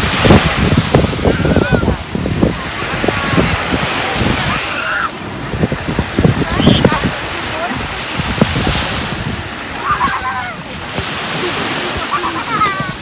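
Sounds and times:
small waves washing onto shore: 0.0s - 13.0s
splashing in shallow water: 0.0s - 13.0s
wind rumbling on microphone: 0.0s - 13.0s.

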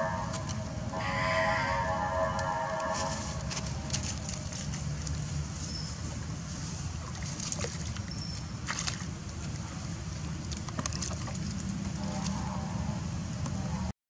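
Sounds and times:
low rumble and hiss: 0.0s - 13.9s
water sloshing and splashing: 2.2s - 13.9s
sharp splashes: 3.0s - 12.4s.

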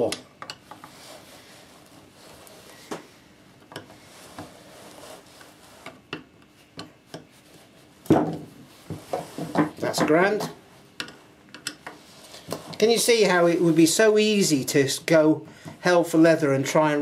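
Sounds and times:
cloth rag rubbing on sander: 0.8s - 3.0s, 4.0s - 6.0s, 12.0s - 15.2s.

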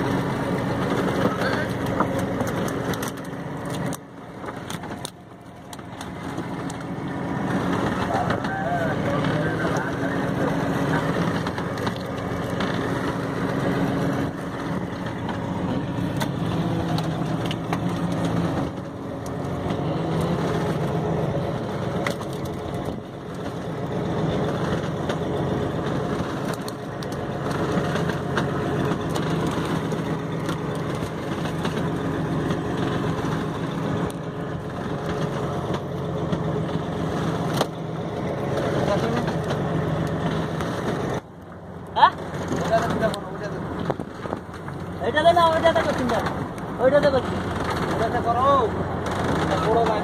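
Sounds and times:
boat engine running: 0.0s - 50.0s
knocks and clatters: 24.3s - 50.0s.

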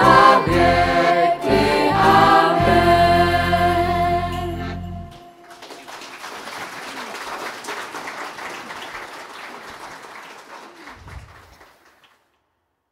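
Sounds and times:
audience applauding: 5.1s - 12.4s.

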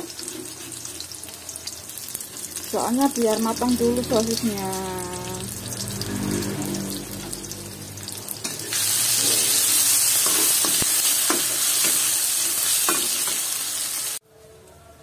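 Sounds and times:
metal spatula scraping a pan: 0.0s - 1.2s, 8.0s - 13.6s
food sizzling in hot oil: 0.0s - 14.2s.

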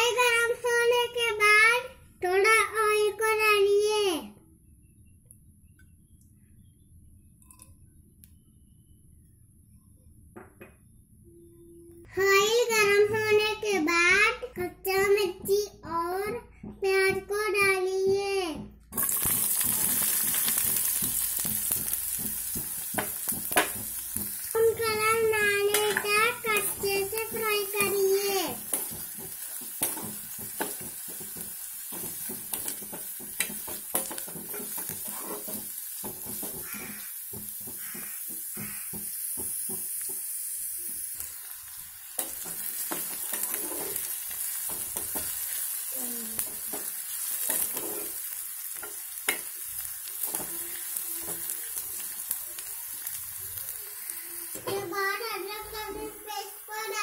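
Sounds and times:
onions sizzling in a pan: 18.9s - 57.0s
spatula scraping metal pan: 32.0s - 35.7s, 42.2s - 44.1s, 47.5s - 48.2s.

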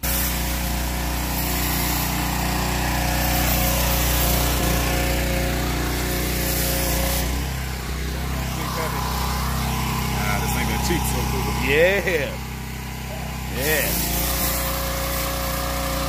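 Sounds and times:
small petrol engine running: 0.0s - 16.0s
even hiss: 13.5s - 15.6s.

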